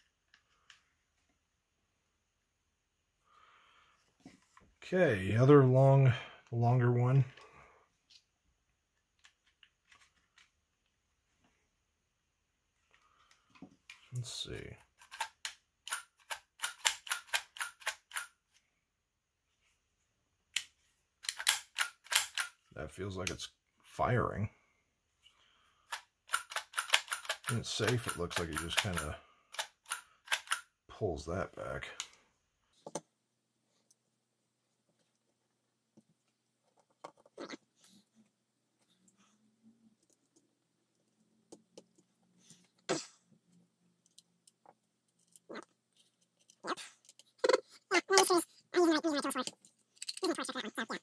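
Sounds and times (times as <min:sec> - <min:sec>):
clicks of small parts handled: 0:44.0 - 0:47.4, 0:49.4 - 0:50.4.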